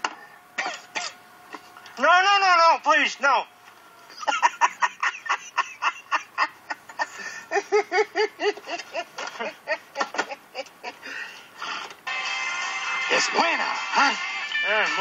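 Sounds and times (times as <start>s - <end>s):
man laughing hard: 4.1s - 11.4s.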